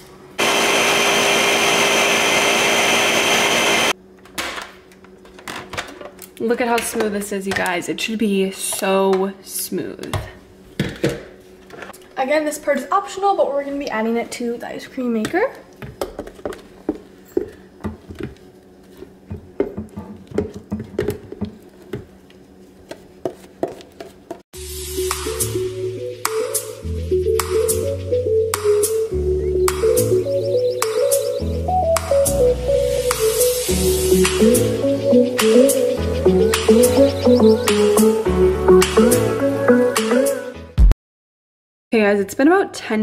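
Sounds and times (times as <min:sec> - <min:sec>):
blender running: 0:00.4 - 0:04.0
music: 0:24.6 - 0:40.9.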